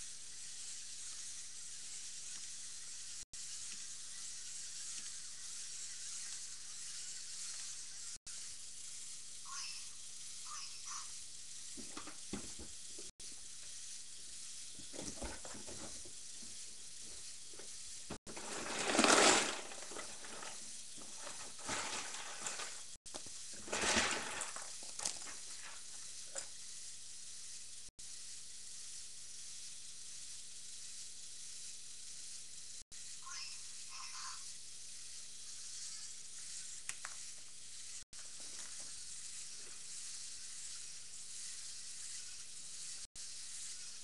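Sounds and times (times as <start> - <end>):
rustling: 11.5 - 26.7.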